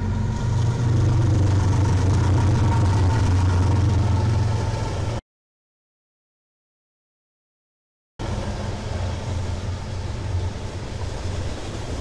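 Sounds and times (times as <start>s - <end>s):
diesel locomotives droning: 0.0s - 5.2s, 8.2s - 12.0s.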